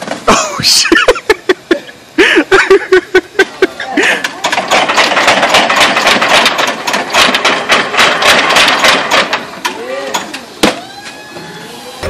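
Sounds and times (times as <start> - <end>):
forklift running: 3.5 - 12.0.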